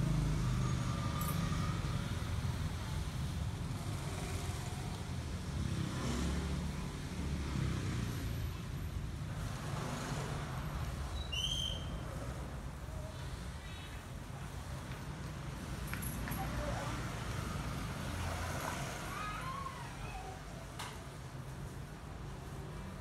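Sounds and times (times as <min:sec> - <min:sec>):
street traffic rumble: 0:00.0 - 0:23.0
high chirp: 0:11.1 - 0:12.0.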